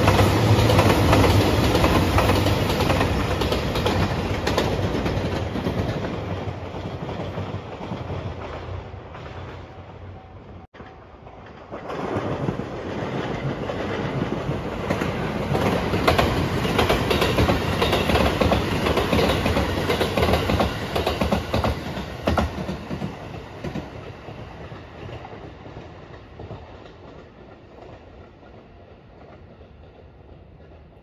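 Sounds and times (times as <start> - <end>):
train wheels clattering: 10.7 - 31.0.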